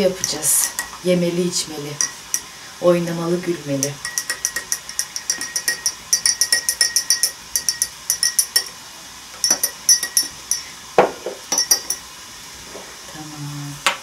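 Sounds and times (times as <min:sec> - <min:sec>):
teaspoon clinking in tea glass: 0:00.2 - 0:01.0, 0:02.0 - 0:02.5, 0:03.8 - 0:08.8, 0:09.4 - 0:10.7, 0:11.5 - 0:12.1.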